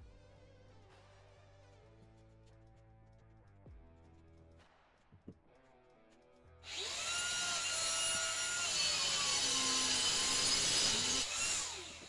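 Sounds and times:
angle grinder cutting brick: 0:06.7 - 0:12.0.

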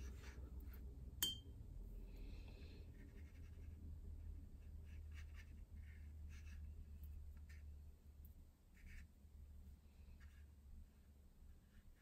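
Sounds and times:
sharp clink: 0:01.2 - 0:01.5
brush scratching on paper: 0:03.0 - 0:07.8.

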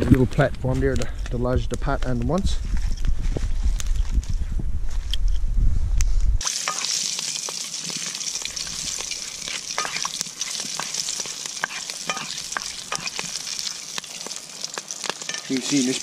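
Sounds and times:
pork frying in oil: 0:06.4 - 0:16.0
spoon stirring in a pan: 0:06.4 - 0:16.0.

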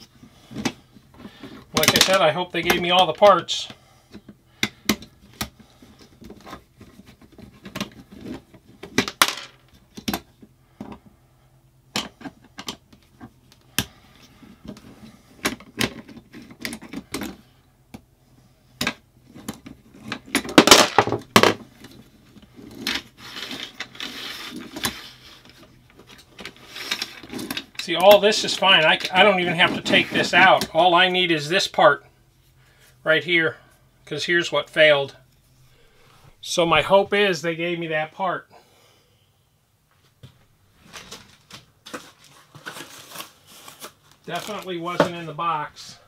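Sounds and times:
clatter of handled parts: 0:04.2 - 0:11.1, 0:18.8 - 0:30.7.

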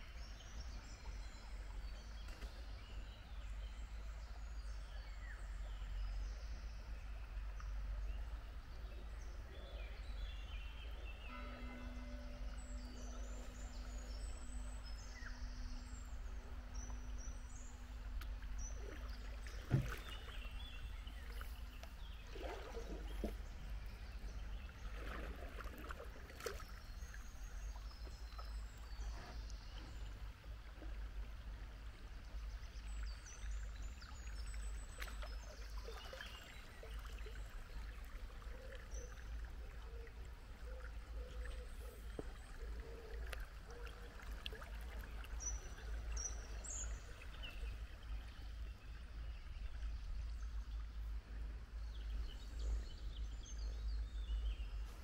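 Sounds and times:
water lapping against a kayak hull: 0:13.5 - 0:55.0.

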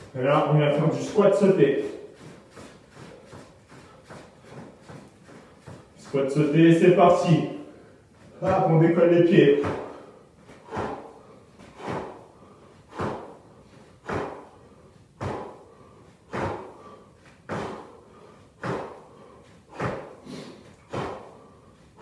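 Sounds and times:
feet thudding on floor: 0:09.5 - 0:12.3, 0:12.9 - 0:14.6, 0:15.2 - 0:15.7, 0:16.3 - 0:18.0, 0:18.6 - 0:21.4.

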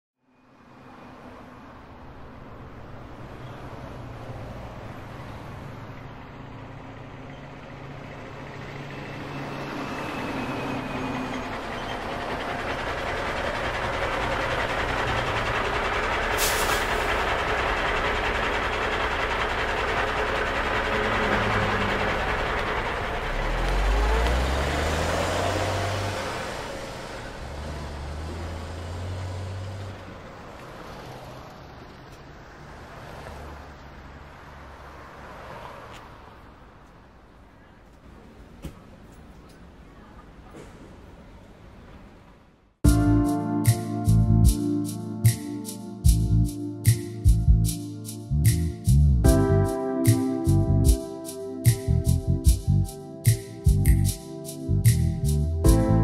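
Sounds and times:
passing traffic: 0:00.2 - 0:56.0
bus engine pulling away: 0:00.4 - 0:56.0
air brake hiss: 0:16.3 - 0:17.2.

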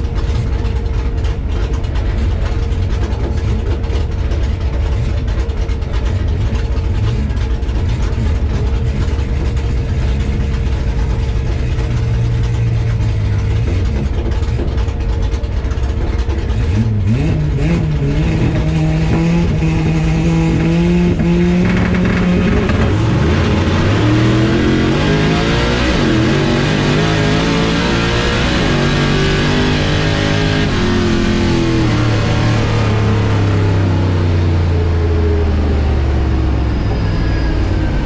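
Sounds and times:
car engine revving through gears: 0:00.0 - 0:38.0.

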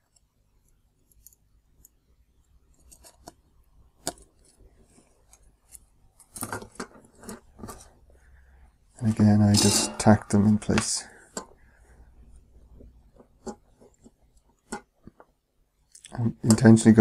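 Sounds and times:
circuit board handling noise: 0:02.8 - 0:07.9.

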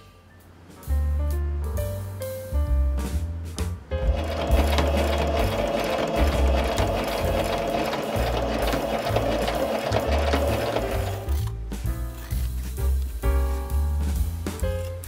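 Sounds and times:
electric sewing machine stitching: 0:04.1 - 0:11.5.

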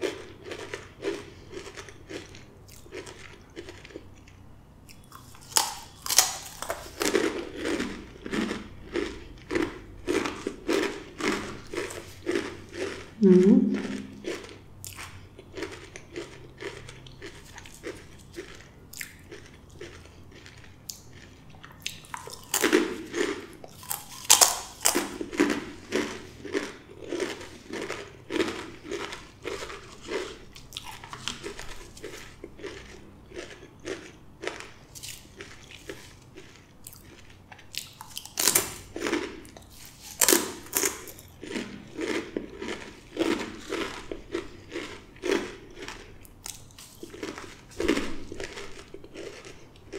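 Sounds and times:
chewing: 0:00.0 - 0:49.9
chips crunching: 0:00.0 - 0:49.9.

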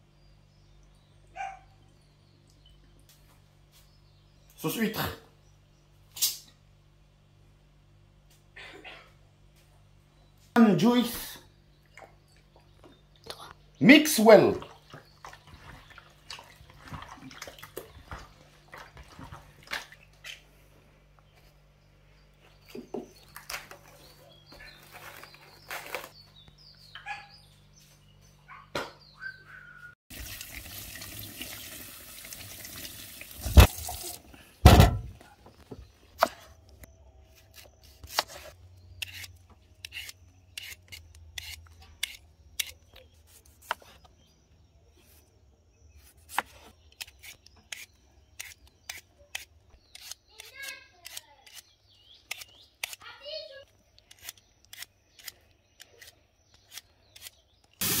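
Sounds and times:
loud knocks: 0:34.6 - 0:35.2
peeler scraping vegetable skin: 0:37.4 - 0:44.0, 0:46.0 - 0:53.0, 0:54.0 - 0:58.0.

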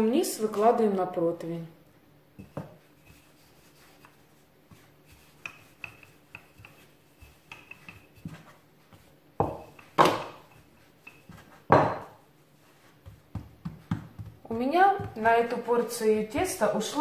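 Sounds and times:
rolling pin rolling dough: 0:02.4 - 0:17.0
rolling pin knocks: 0:09.4 - 0:10.5.

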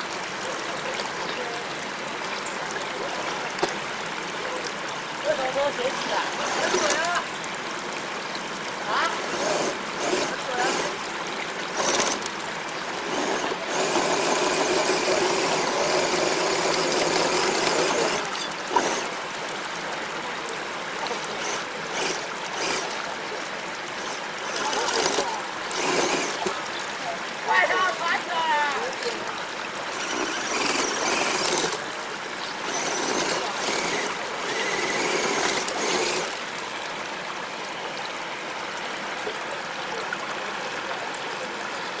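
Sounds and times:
flowing stream: 0:00.0 - 0:42.0
toy crawler motor whining: 0:05.7 - 0:07.4, 0:08.9 - 0:11.0, 0:11.7 - 0:12.4, 0:13.0 - 0:19.2, 0:21.2 - 0:23.0, 0:24.0 - 0:26.6, 0:29.9 - 0:36.4.

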